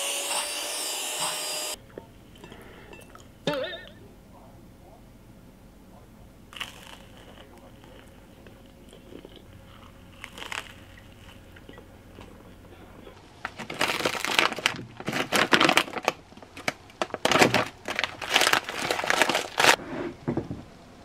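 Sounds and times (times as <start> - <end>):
plastic pouches crinkling: 6.6 - 9.3, 10.1 - 11.7, 13.4 - 19.8.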